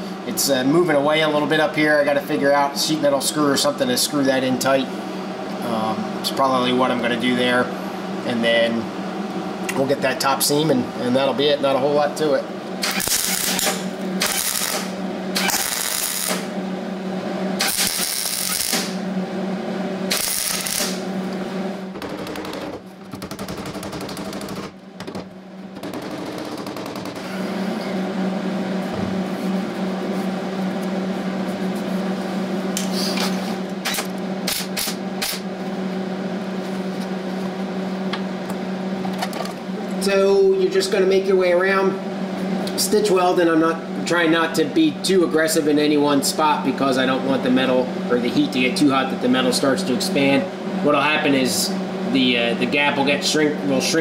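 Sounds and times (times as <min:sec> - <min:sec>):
welder crackling: 0:12.8 - 0:16.5, 0:17.6 - 0:19.0, 0:20.1 - 0:21.0.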